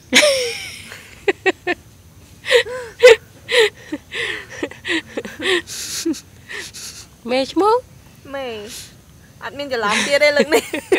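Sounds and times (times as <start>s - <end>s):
person laughing breathily: 0.1s - 1.7s, 2.4s - 7.0s.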